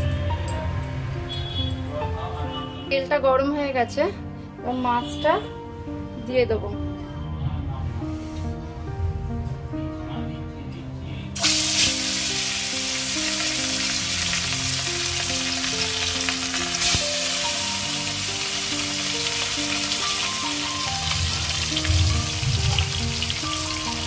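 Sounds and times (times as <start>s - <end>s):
food sizzling in hot oil: 11.4s - 24.0s.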